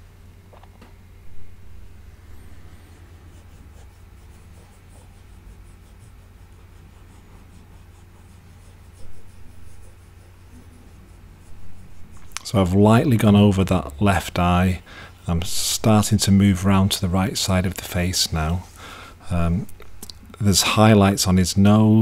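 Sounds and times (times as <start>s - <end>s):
cotton swab scratching paint: 2.8s - 12.8s.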